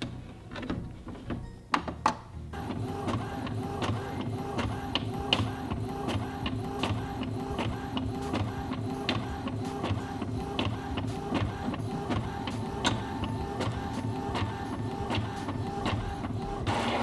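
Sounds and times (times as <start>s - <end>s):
printer carriage motor whine: 2.5s - 17.0s
paper feeding out: 2.6s - 17.0s
printer carriage clicks: 3.0s - 16.3s.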